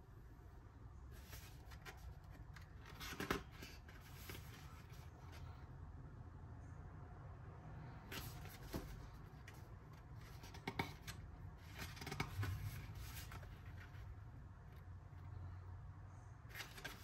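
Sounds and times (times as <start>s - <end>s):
book pages turning: 1.1s - 5.6s, 7.9s - 14.9s, 16.5s - 17.0s.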